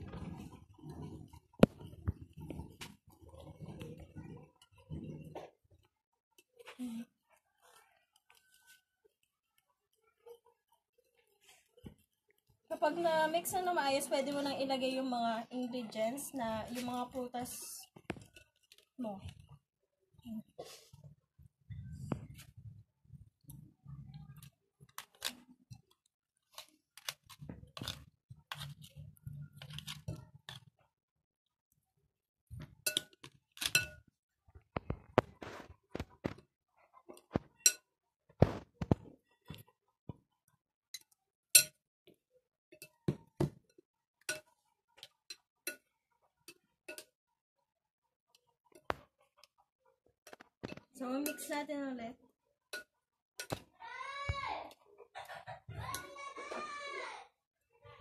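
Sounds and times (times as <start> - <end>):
metal spoon scraping plastic container: 0.0 - 5.4, 26.5 - 30.6
metal spoon clinking ceramic bowl: 32.8 - 34.1, 37.6 - 37.9, 41.0 - 41.8, 44.3 - 45.9, 46.5 - 47.2, 50.3 - 51.5, 52.8 - 53.6.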